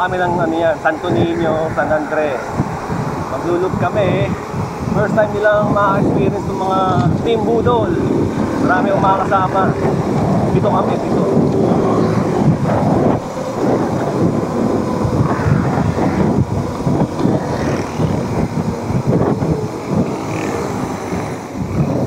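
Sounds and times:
motion noise rush: 0:00.0 - 0:22.0
wind buffeting microphone: 0:00.0 - 0:22.0.

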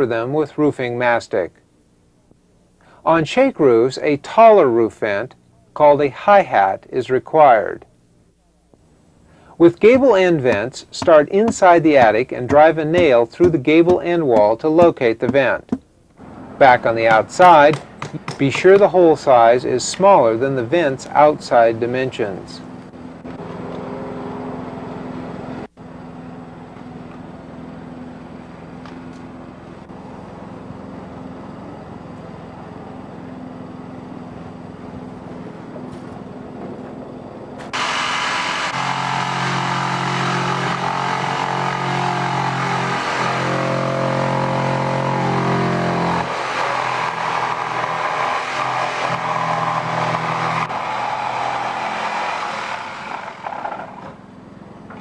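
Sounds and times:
electric drill boring through siding: 0:37.7 - 0:54.1.

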